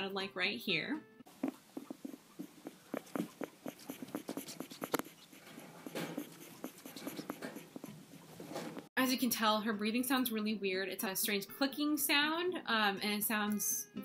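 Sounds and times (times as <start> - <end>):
guinea pig labored clicking breathing: 1.3 - 8.4.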